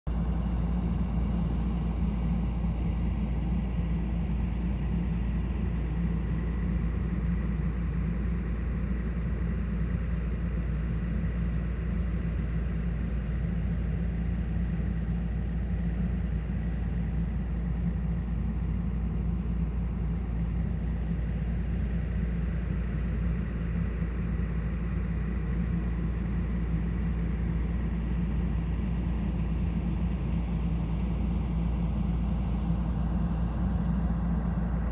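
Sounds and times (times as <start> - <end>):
excavator diesel engine running: 0.1 - 34.9.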